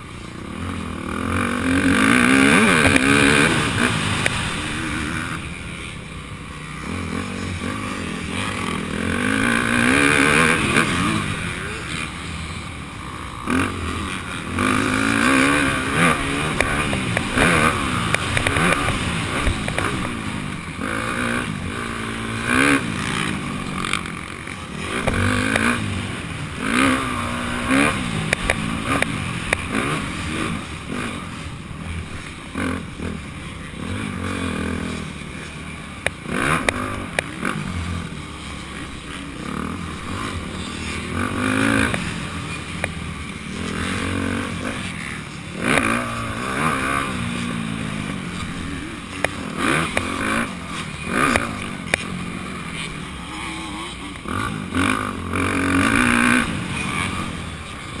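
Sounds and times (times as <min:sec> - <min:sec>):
dirt bike engine revving: 0:00.0 - 0:58.0
sharp knocks from rough ride: 0:01.6 - 0:04.8, 0:14.6 - 0:20.4, 0:22.6 - 0:26.0, 0:36.0 - 0:37.7, 0:43.6 - 0:52.2.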